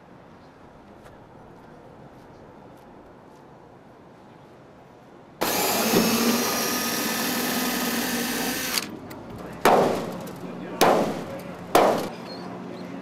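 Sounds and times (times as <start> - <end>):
cordless drill driving screw: 5.4 - 8.9.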